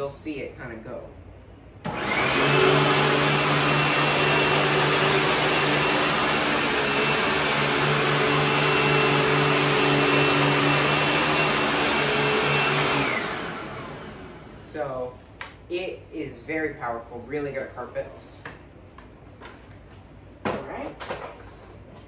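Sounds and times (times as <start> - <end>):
upright vacuum cleaner running: 1.8 - 14.9.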